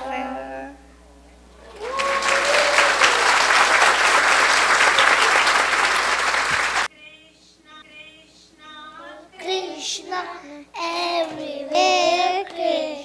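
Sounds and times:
audience applause: 0:01.6 - 0:06.9.

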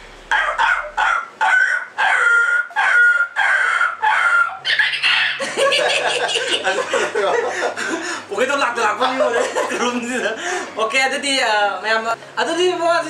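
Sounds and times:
harsh chicken call: 0:00.0 - 0:05.7
chicken clucking: 0:00.3 - 0:05.4.

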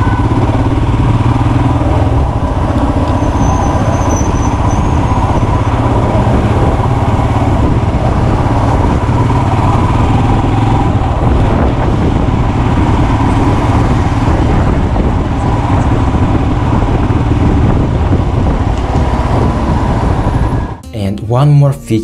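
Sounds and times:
motorcycle engine at low revs: 0:00.0 - 0:20.8.

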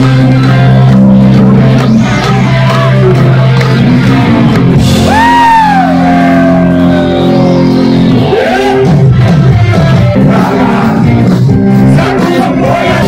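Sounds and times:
rock band playing live: 0:00.0 - 0:13.0
electric guitar high note sliding: 0:01.9 - 0:09.1.

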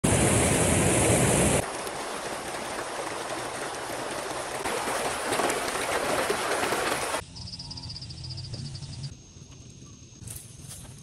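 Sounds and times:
stream rushing over rocks: 0:00.0 - 0:07.2.

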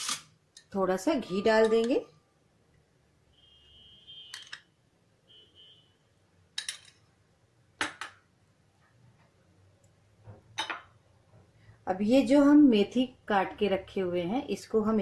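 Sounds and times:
utensils clicking on steel pan: 0:06.6 - 0:07.0.

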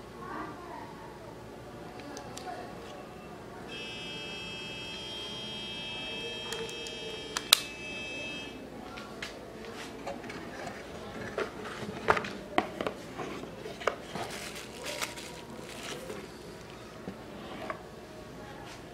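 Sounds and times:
plastic and cardboard rustling: 0:09.7 - 0:17.8.

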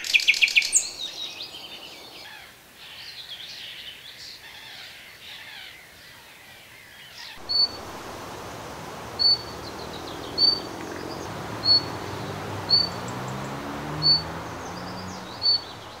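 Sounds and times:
small birds twittering: 0:07.4 - 0:16.0
bird whistled call: 0:07.5 - 0:16.0.

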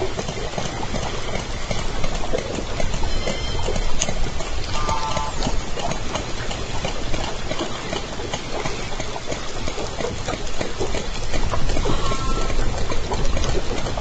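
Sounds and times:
low rumble of water: 0:00.0 - 0:14.0
killer whale call: 0:02.9 - 0:05.5, 0:11.8 - 0:12.8.

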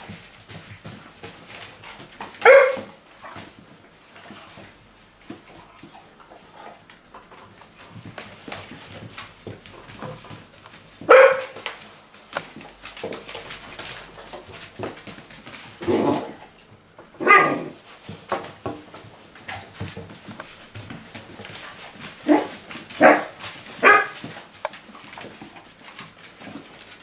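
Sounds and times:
paws clicking on tile floor: 0:00.0 - 0:27.0
puppies barking: 0:02.4 - 0:03.0, 0:11.1 - 0:11.6, 0:17.2 - 0:17.8, 0:22.2 - 0:24.3.

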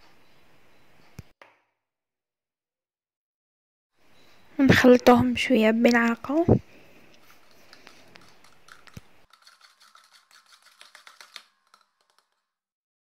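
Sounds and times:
spoon scraping a plastic jug: 0:07.2 - 0:12.5.

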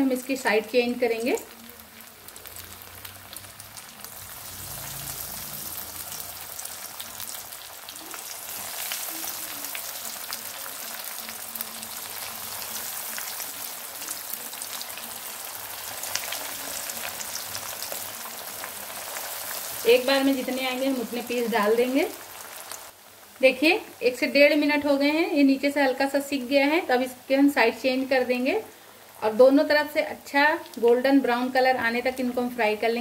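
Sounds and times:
patties sizzling in hot oil: 0:00.0 - 0:33.0.

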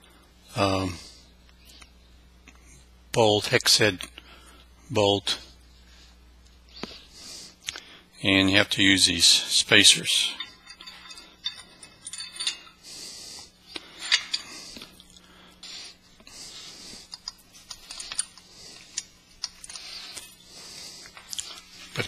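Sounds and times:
metal hardware clinking: 0:09.8 - 0:12.8, 0:13.9 - 0:14.6.

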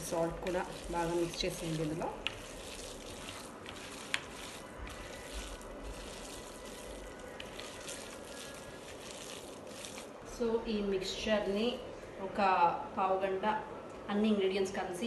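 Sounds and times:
wet squishing of minced meat: 0:00.0 - 0:10.2.

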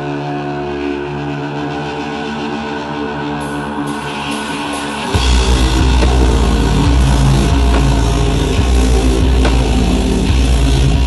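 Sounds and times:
live rock band playing: 0:03.4 - 0:11.0.

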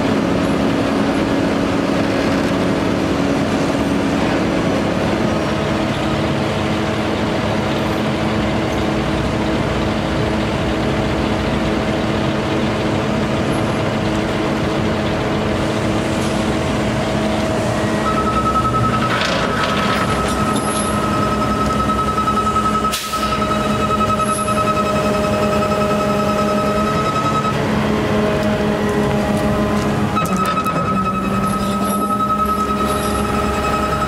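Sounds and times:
truck engine humming: 0:00.0 - 0:34.0.

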